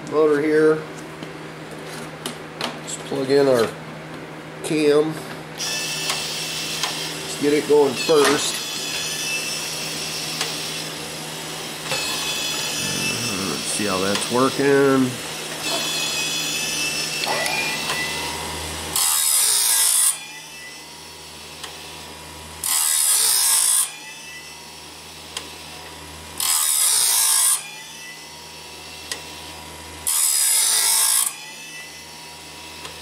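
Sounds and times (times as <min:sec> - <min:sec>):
abrasive wheel grinding metal: 0:11.9 - 0:17.6
grinding wheel spinning: 0:12.2 - 0:15.0.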